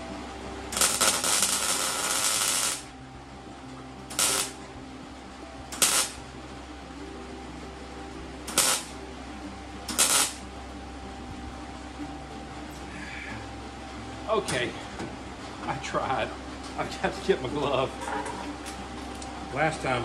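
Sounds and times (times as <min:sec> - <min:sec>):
welder crackling: 0:00.6 - 0:02.9, 0:04.1 - 0:04.7, 0:05.7 - 0:06.2, 0:08.4 - 0:09.0, 0:09.9 - 0:10.5.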